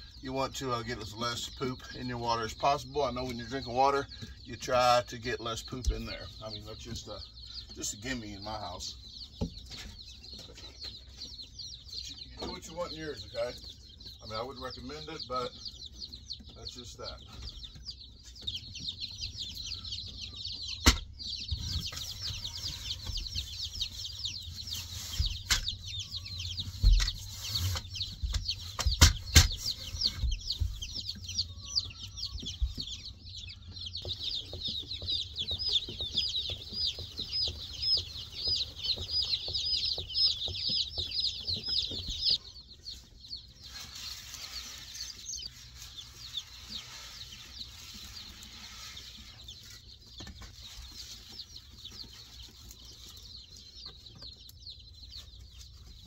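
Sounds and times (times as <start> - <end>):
chicks peeping: 0.0 - 56.0.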